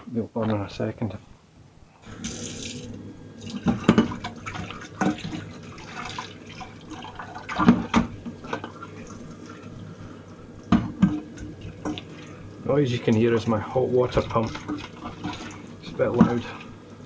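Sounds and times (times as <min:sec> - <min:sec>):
water pump running: 0:02.0 - 0:17.0
tap water running into saucepan: 0:02.1 - 0:09.7, 0:13.0 - 0:16.7
dish brush scrubbing pan: 0:03.5 - 0:09.7, 0:13.3 - 0:16.7
pan knocking against sink: 0:03.6 - 0:04.4, 0:10.7 - 0:12.0.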